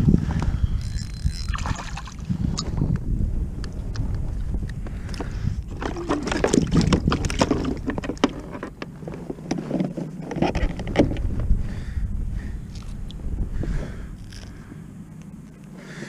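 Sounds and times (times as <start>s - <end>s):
wind rumbling on microphone: 0.0s - 16.0s
clicks and knocks of fishing gear: 0.8s - 2.8s, 3.9s - 11.4s, 12.7s - 13.0s, 14.2s - 14.6s.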